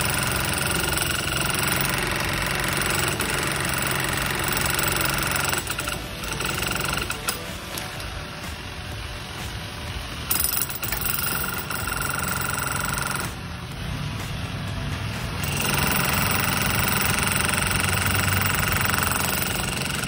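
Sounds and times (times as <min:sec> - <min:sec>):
demolition hammer chiselling concrete: 0:00.0 - 0:07.6, 0:10.3 - 0:13.4, 0:15.4 - 0:20.0.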